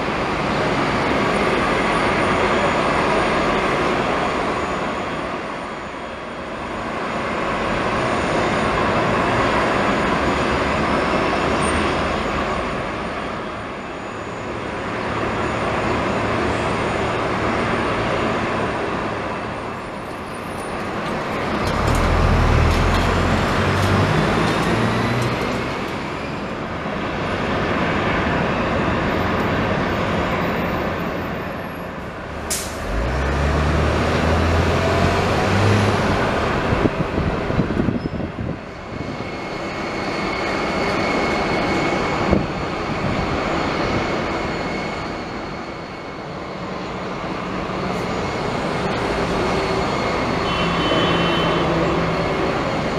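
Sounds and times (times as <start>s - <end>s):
airport ramp roar: 0.0s - 52.9s
tug engine revving: 21.4s - 25.9s, 32.3s - 36.6s
high-pitched whine: 37.9s - 52.9s.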